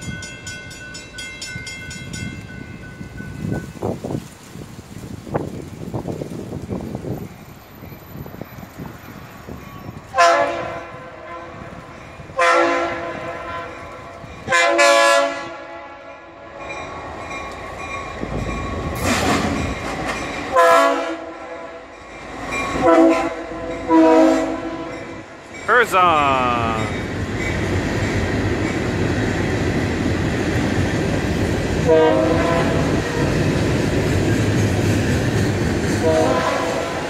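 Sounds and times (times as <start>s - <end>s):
locomotive and rail rumble: 0.0s - 25.7s, 26.8s - 37.0s
locomotive air horn blasts: 10.1s - 11.6s, 12.4s - 13.7s, 14.5s - 16.0s, 31.9s - 32.8s, 36.0s - 36.9s.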